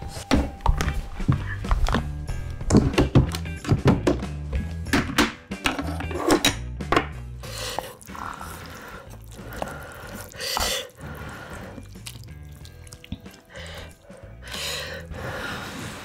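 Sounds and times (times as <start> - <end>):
chopsticks stirring noodles: 7.7 - 14.6.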